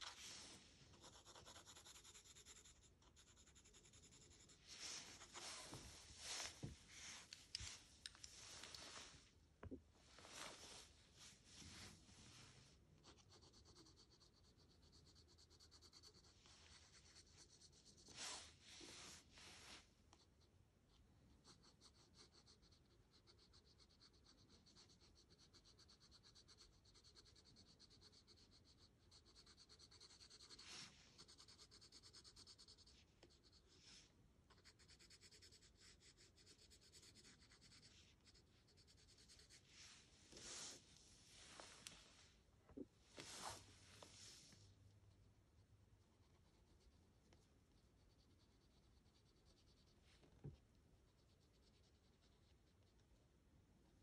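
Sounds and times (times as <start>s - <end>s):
pencil scratching on paper: 0.9s - 5.8s, 13.0s - 18.6s, 21.4s - 33.8s, 34.5s - 39.7s, 46.1s - 50.3s, 51.1s - 53.0s.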